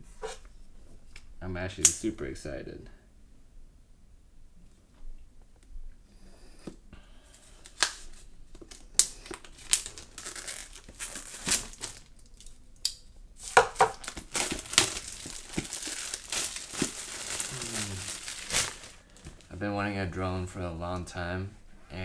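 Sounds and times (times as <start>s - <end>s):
plastic wrap crinkling and tearing: 7.6s - 12.6s, 13.4s - 19.5s.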